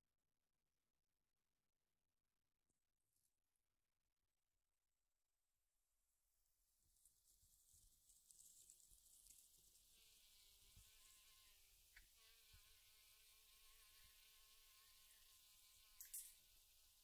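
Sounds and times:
mosquito whine: 9.2s - 17.0s.

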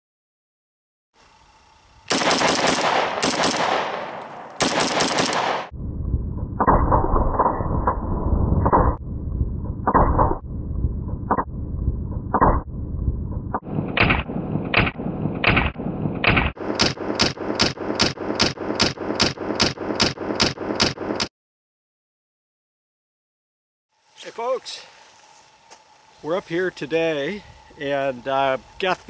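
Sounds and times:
rifle shots: 2.1s - 5.7s, 13.8s - 21.3s.

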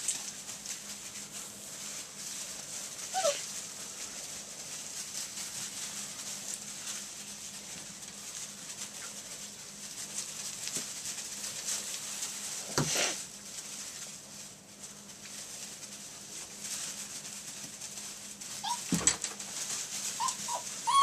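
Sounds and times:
puppies pattering through wood shavings: 0.0s - 21.0s
puppy yelp: 3.0s - 3.6s, 18.5s - 19.0s, 20.0s - 21.0s.

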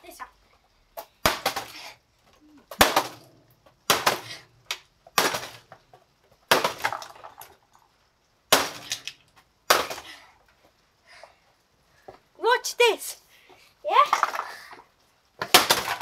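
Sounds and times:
axe cracking plastic: 1.0s - 1.9s, 2.7s - 7.6s, 8.5s - 10.2s, 15.4s - 16.0s
plastic pieces clattering: 2.6s - 7.9s, 8.7s - 9.4s, 14.0s - 14.8s.

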